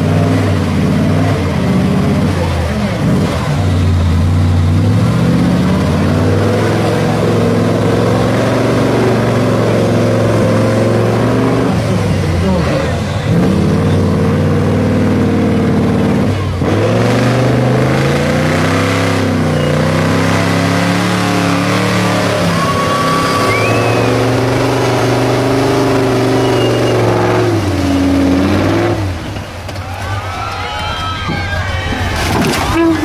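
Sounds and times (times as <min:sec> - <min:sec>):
truck engine revving hard: 0:00.0 - 0:29.7
truck churning through mud and water: 0:00.0 - 0:33.0.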